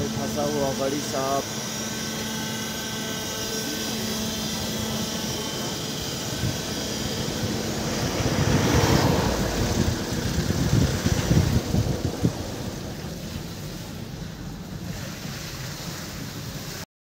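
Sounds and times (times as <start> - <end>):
faint high steady tones: 0.0 - 10.3
low engine rumble: 0.0 - 16.8
vehicle engine hum: 0.0 - 16.8.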